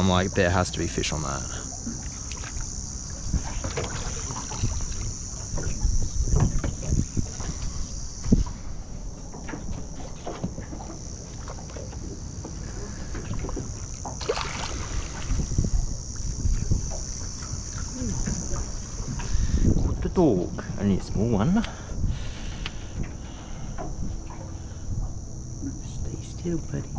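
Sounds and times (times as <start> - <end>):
high insect drone: 0.0 - 26.9
wind rumble on microphone: 0.0 - 26.9
microphone handling noise: 3.2 - 11.1, 14.8 - 20.8
landing net splashing into water: 13.1 - 15.7.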